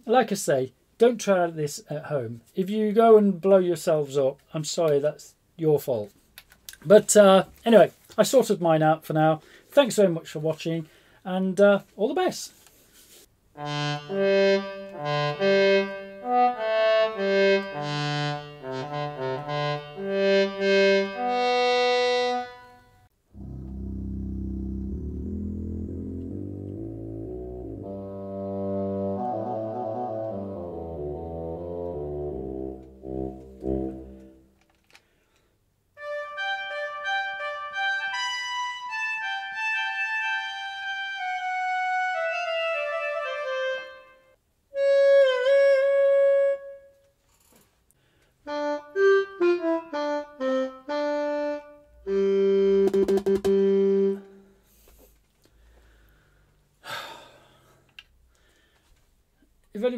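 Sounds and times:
electronic wind instrument notes: 0:13.6 - 0:34.6, 0:36.0 - 0:47.1, 0:48.5 - 0:54.6.

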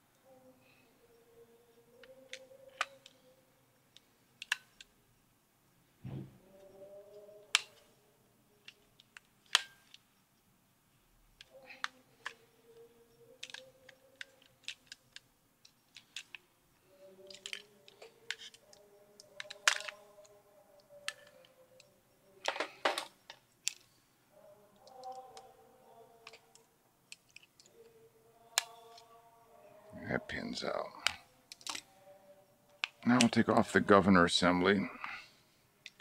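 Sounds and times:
small metal parts clicking: 0:01.9 - 0:03.3, 0:08.6 - 0:10.0, 0:11.4 - 0:23.9, 0:24.8 - 0:25.5, 0:26.2 - 0:29.1, 0:31.0 - 0:32.0.

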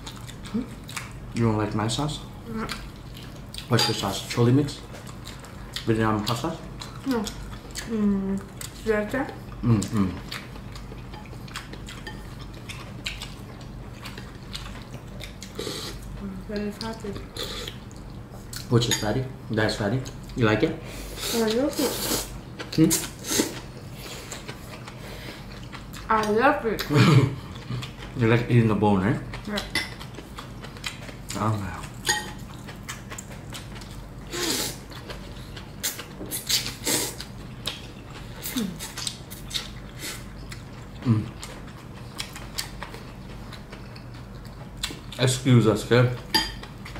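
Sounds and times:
chewing and eating noises: 0:00.0 - 0:46.9
low steady hum: 0:00.0 - 0:46.9
chopsticks clinking on ceramic bowls: 0:03.7 - 0:04.1, 0:18.8 - 0:19.2, 0:32.0 - 0:32.4, 0:46.3 - 0:46.7.

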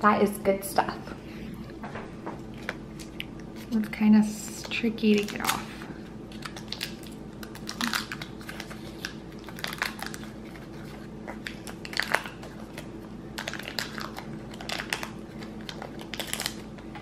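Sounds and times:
foil liners crinkling: 0:04.6 - 0:17.0.

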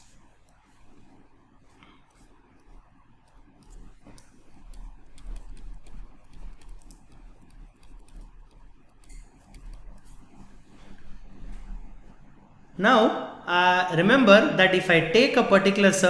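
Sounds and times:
stylus tapping on tablet screen: 0:02.1 - 0:10.5.

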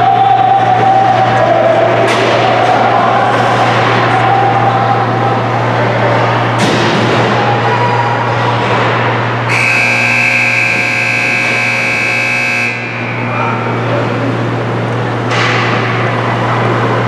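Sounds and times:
scoreboard horn steady tone: 0:09.5 - 0:13.5.

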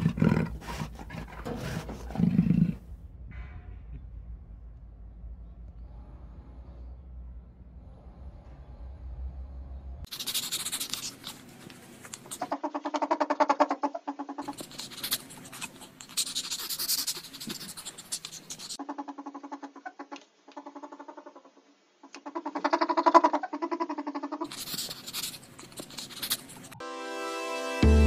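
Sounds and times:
small mammal purring calls: 0:12.2 - 0:26.8.

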